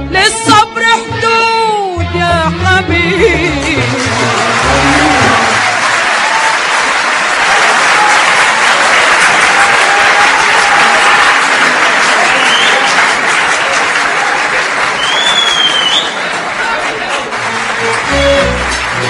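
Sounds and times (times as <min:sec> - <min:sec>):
audience applauding: 0:03.6 - 0:19.0
orchestra note: 0:17.4 - 0:19.0.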